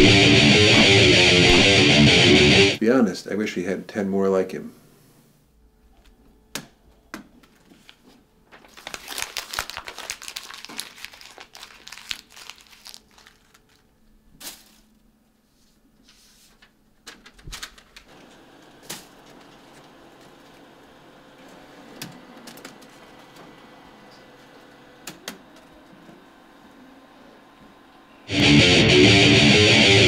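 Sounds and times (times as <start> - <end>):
paper being crumpled: 7.6 - 15.0, 16.1 - 20.4.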